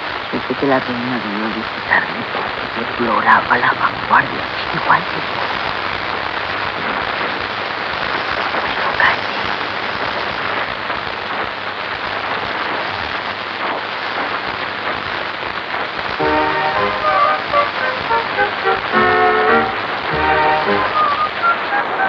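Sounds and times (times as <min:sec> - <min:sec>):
music with short notes: 0:16.2 - 0:21.6.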